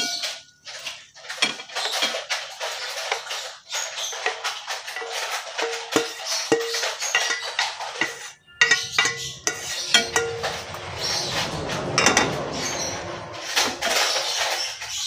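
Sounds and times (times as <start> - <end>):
wooden spatula scraping a pan: 0.0 - 15.0.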